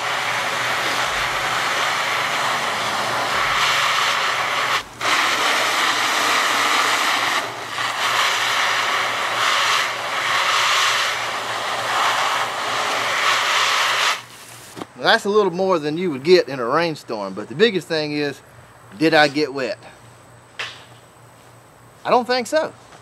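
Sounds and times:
hose spray on a jacket: 0:00.0 - 0:14.8.

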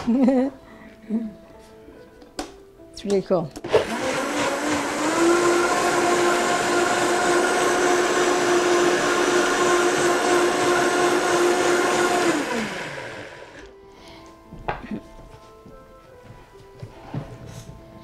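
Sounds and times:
blender motor winding down: 0:03.7 - 0:13.7
blender running: 0:03.7 - 0:13.7.

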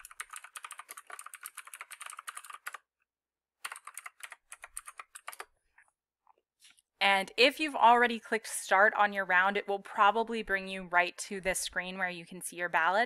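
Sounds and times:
typing on computer keyboard: 0:00.0 - 0:02.9, 0:03.6 - 0:05.5.

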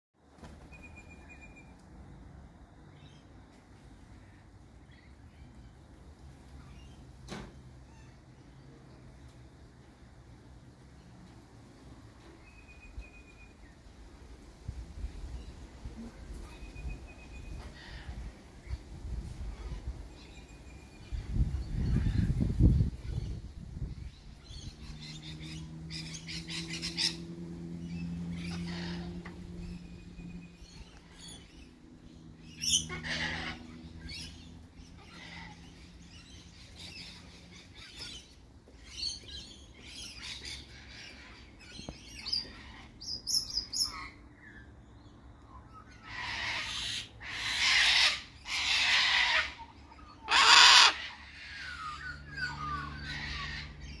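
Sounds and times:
low steady hum: 0:00.3 - 0:50.3
cockatoo calling: 0:32.6 - 0:34.3, 0:45.8 - 0:54.0.

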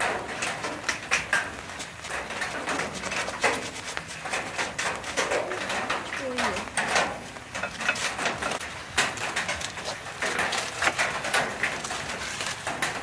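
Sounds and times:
aluminium foil crinkling and tearing: 0:02.1 - 0:06.7, 0:08.0 - 0:13.0.

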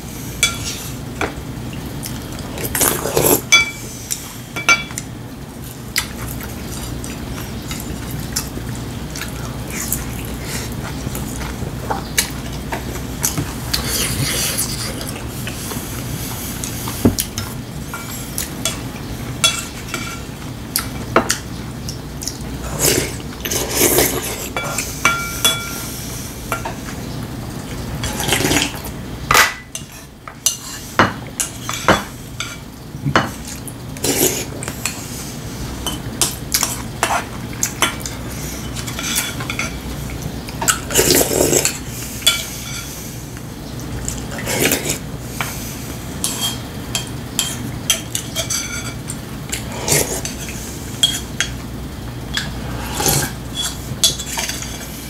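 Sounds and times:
slurping soup: 0:02.5 - 0:03.5, 0:13.7 - 0:17.4, 0:22.6 - 0:24.9, 0:28.0 - 0:28.8, 0:34.0 - 0:35.3, 0:40.9 - 0:43.1, 0:44.3 - 0:46.6, 0:49.5 - 0:50.9, 0:52.6 - 0:55.0.

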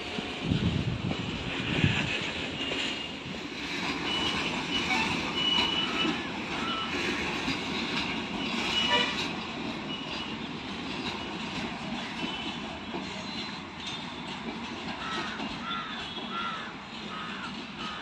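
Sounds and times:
freight train rumbling past: 0:00.0 - 0:18.0
crow cawing: 0:15.0 - 0:18.0.

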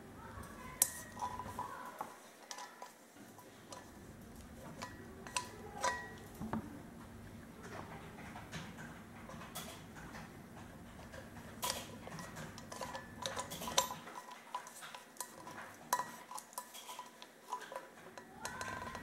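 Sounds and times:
metallic clicks and scrapes: 0:08.5 - 0:19.0.

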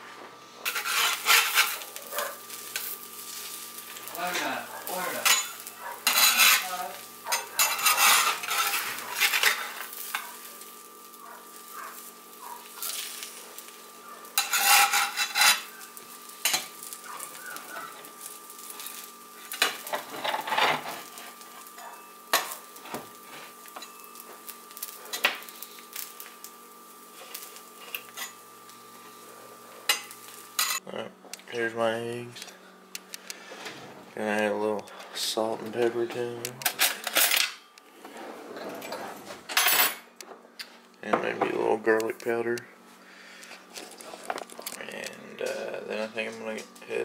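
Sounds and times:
metal spatula scraping: 0:00.6 - 0:02.0, 0:04.3 - 0:10.4, 0:14.3 - 0:18.0
eggs sizzling on a griddle: 0:00.6 - 0:30.8, 0:31.6 - 0:38.0, 0:41.8 - 0:47.0.

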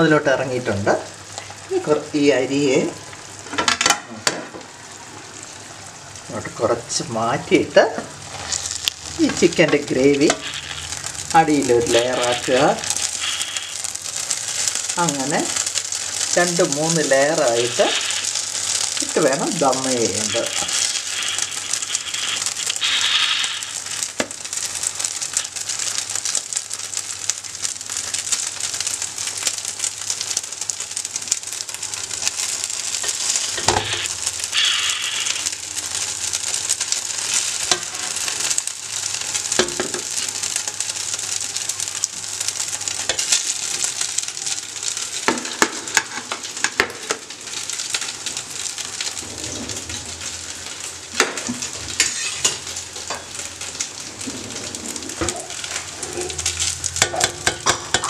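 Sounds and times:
gravy sizzling in a pot: 0:00.0 - 0:58.0
metal spoon scraping a pot: 0:52.0 - 0:52.6.

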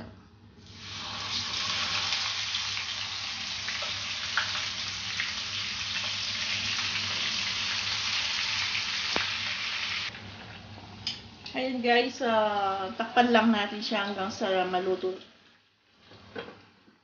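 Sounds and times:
meat sizzling in hot oil: 0:00.7 - 0:10.3.

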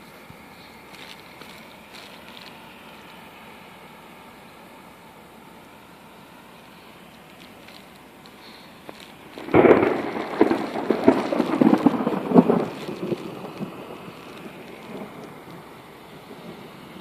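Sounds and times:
thunderclap: 0:09.4 - 0:17.0.

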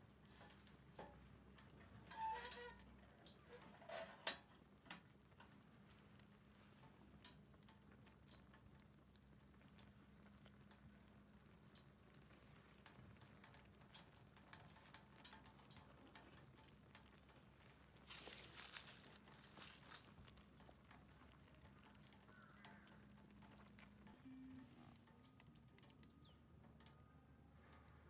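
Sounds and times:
faint ticks and clicks: 0:00.0 - 0:28.0
short rustle: 0:18.0 - 0:20.2
faint low hum: 0:18.3 - 0:28.0.

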